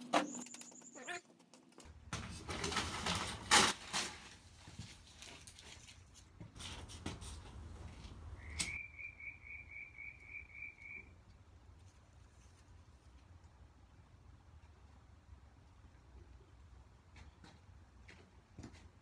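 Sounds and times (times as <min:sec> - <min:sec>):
hands rustling paper: 0:02.2 - 0:08.3.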